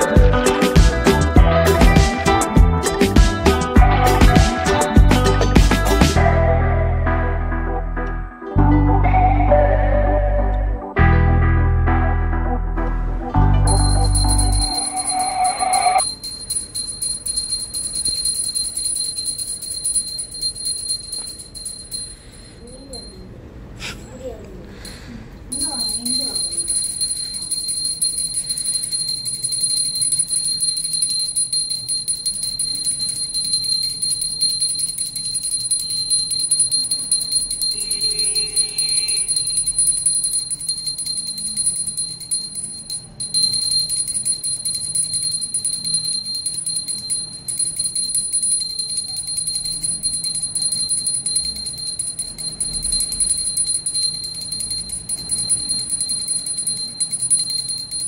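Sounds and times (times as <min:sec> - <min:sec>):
brass hand bell ringing: 0:00.0 - 0:00.8, 0:13.6 - 0:23.2, 0:25.5 - 0:58.0.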